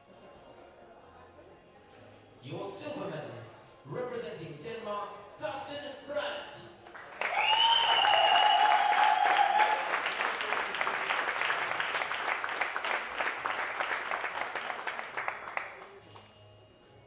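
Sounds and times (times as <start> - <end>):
audience applauding: 6.9 - 16.0.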